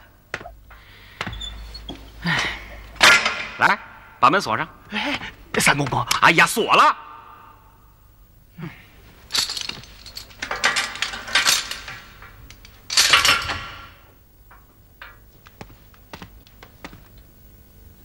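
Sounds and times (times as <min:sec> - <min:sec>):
chain and padlock rattling: 0:09.3 - 0:14.0.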